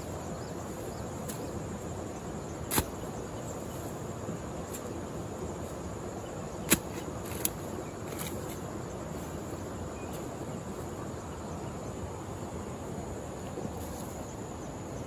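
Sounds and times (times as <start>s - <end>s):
hand hoe chopping into soil: 2.7s - 3.1s, 6.6s - 8.6s.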